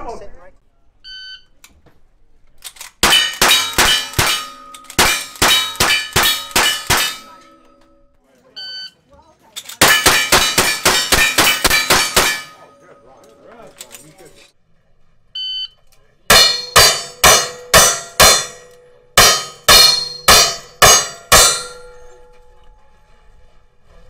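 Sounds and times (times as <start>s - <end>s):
steel target ringing: 3.0s - 8.1s, 9.8s - 13.5s, 16.3s - 22.9s
electronic timer beep: 8.6s - 9.0s, 15.4s - 15.8s.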